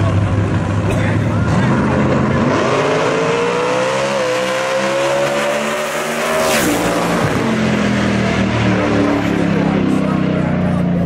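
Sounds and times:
drag racing cars at full throttle: 0.0 - 11.0
car rushing past: 1.5 - 10.7.

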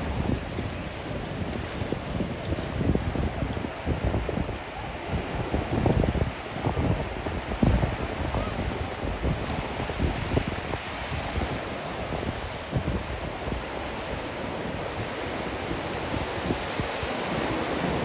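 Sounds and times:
waves breaking on beach: 0.0 - 18.0
wind buffeting microphone: 0.0 - 18.0.

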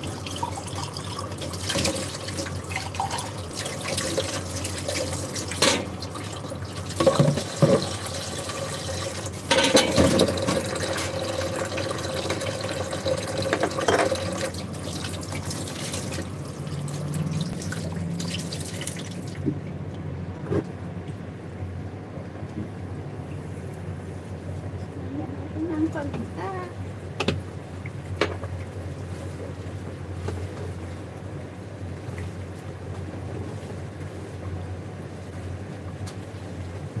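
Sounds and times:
water running and splashing: 0.0 - 19.7
kitchenware clattering: 9.5 - 11.2, 13.4 - 14.4.

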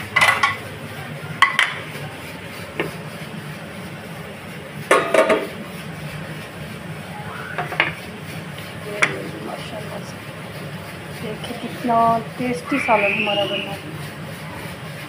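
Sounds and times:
cookware clanking on stovetop: 4.9 - 5.5.

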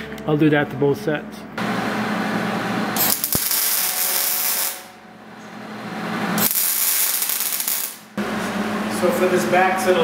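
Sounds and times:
welder arc crackling and hissing: 1.6 - 4.9, 6.2 - 9.5.

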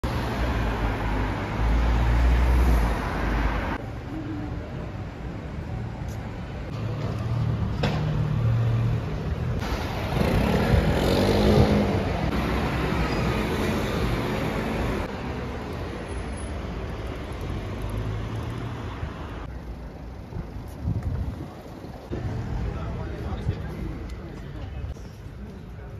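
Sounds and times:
cars driving past: 0.0 - 3.8, 6.7 - 20.8.

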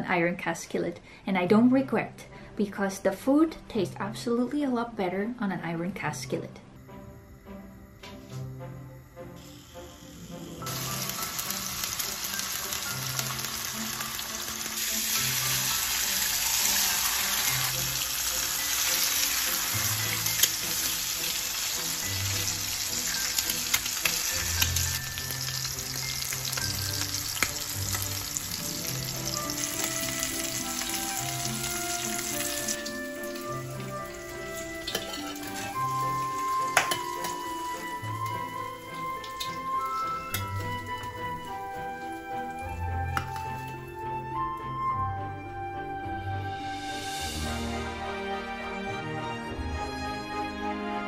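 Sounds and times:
bacon sizzling in skillet: 9.0 - 43.9.

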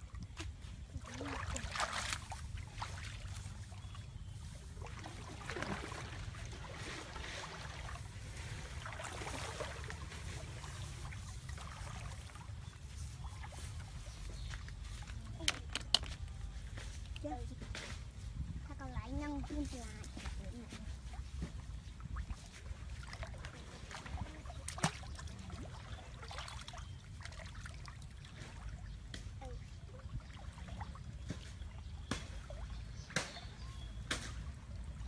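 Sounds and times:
light splashing of water: 0.0 - 18.2, 19.1 - 35.0
rustling of grass and plants: 0.6 - 23.0.

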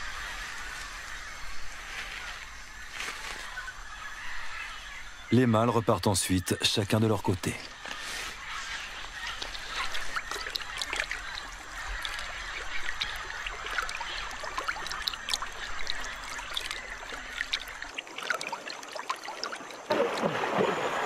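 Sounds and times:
shallow water trickling and lapping: 0.0 - 21.0
water drips and splashes: 8.7 - 21.0.

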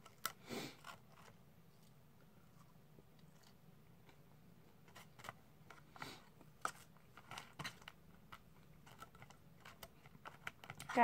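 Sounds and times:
plastic fork scraping cardboard: 0.0 - 1.4, 4.8 - 11.0.

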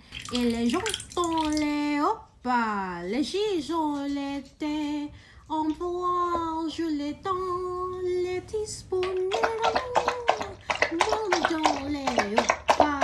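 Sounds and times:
high voice singing: 5.6 - 13.0
dog lapping water: 8.9 - 13.0.

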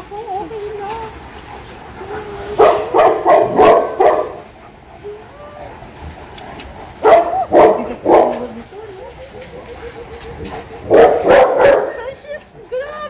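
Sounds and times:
dog whining: 0.0 - 4.0, 4.9 - 13.0
dog barking: 2.6 - 4.5, 7.0 - 12.1.

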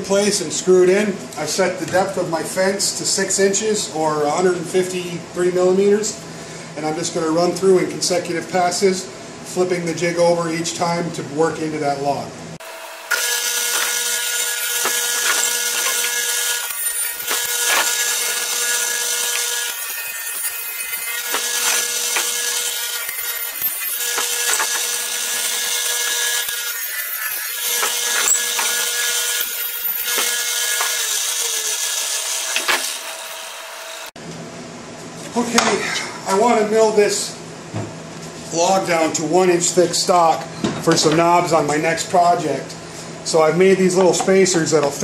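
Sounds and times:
table saw cutting wood: 12.6 - 34.2.

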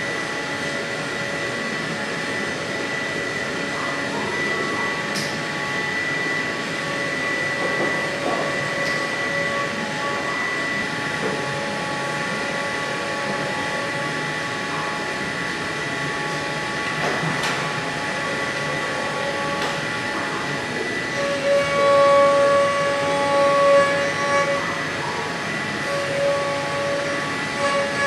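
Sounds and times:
milling machine whining: 0.0 - 28.0
end mill cutting plastic: 15.1 - 28.0.

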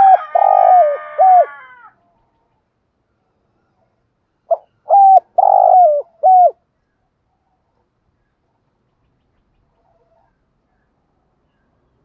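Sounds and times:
dove cooing: 0.0 - 1.8, 4.5 - 6.6.

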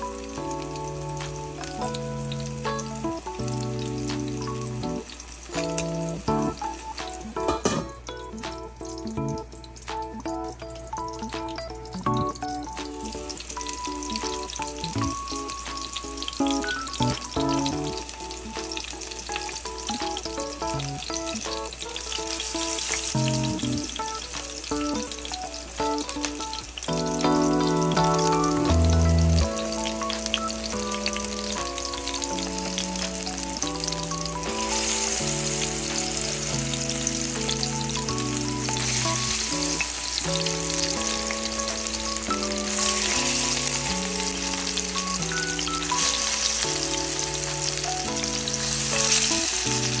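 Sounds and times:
patties sizzling in oil: 0.0 - 50.0
melody playing: 23.2 - 24.3, 26.9 - 50.0.

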